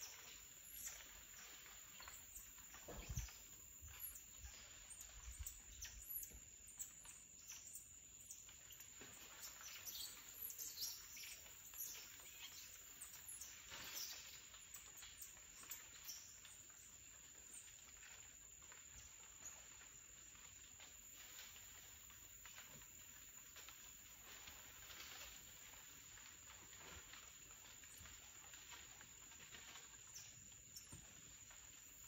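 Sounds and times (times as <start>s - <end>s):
leaves rustling: 0.0s - 32.0s.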